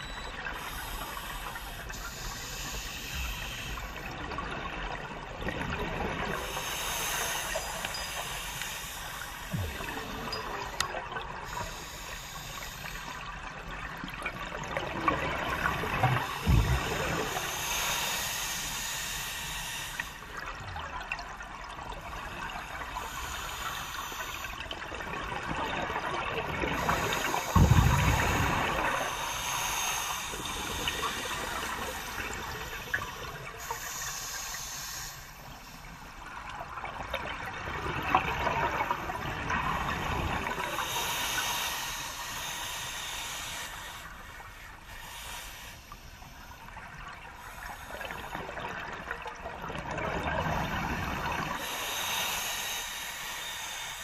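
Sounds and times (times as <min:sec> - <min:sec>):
air hissing through regulator: 0:00.0 - 0:04.2, 0:06.3 - 0:13.4, 0:15.7 - 0:20.4, 0:22.6 - 0:24.7, 0:26.6 - 0:36.2, 0:38.6 - 0:48.5, 0:50.4 - 0:54.0
exhaust bubbles rushing: 0:27.6 - 0:29.1.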